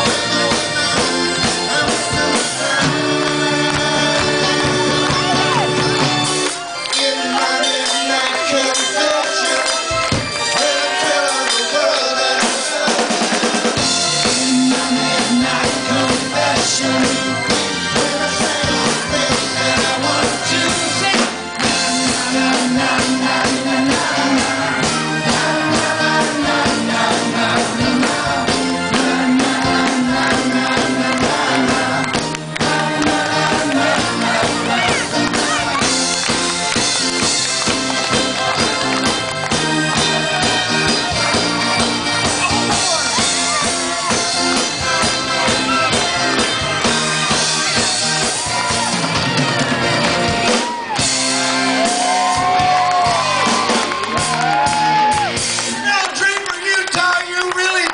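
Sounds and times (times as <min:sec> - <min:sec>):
drum kit: 0:00.0 - 0:06.6, 0:09.5 - 0:56.2
electric guitars: 0:00.0 - 0:56.5
keyboard: 0:00.0 - 0:57.9.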